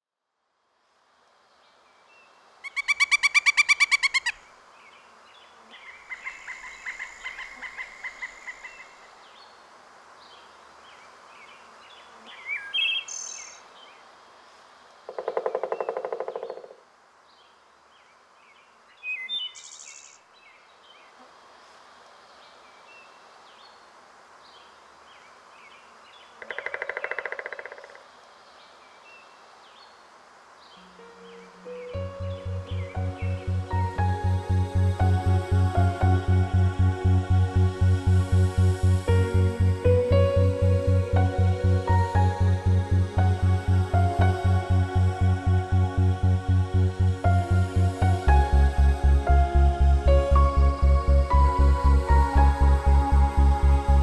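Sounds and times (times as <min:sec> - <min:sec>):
woodpecker drumming rolls: 0:15.1 - 0:16.8, 0:26.4 - 0:28.0
small bird chirps: 0:19.0 - 0:20.2.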